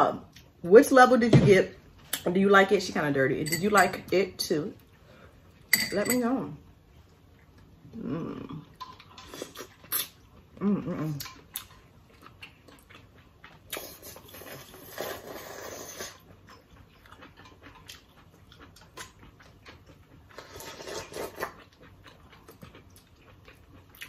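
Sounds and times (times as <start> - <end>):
wet chewing and lip smacking: 11.2 - 24.0
slurping noodles: 13.7 - 16.2, 20.3 - 21.6.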